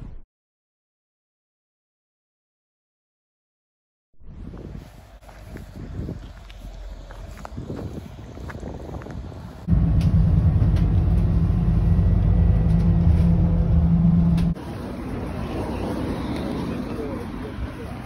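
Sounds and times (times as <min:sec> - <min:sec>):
outdoor noise: 0:04.2 - 0:18.0
vehicle engine drone: 0:04.7 - 0:18.0.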